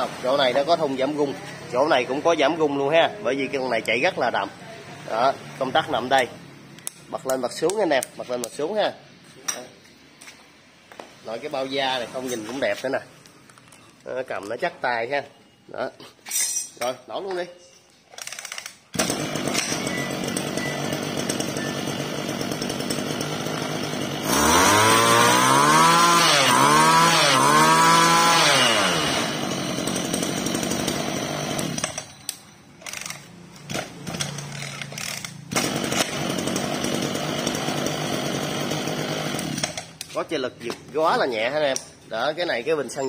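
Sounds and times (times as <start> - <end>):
brush cutter engine revving: 18.9 - 32.1, 32.9 - 40.2.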